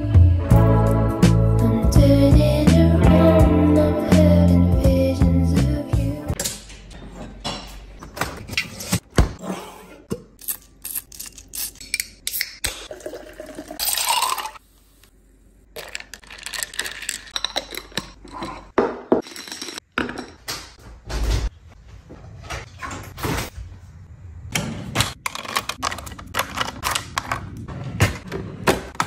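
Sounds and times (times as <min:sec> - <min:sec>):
drink poured over ice: 0:12.9 - 0:14.6.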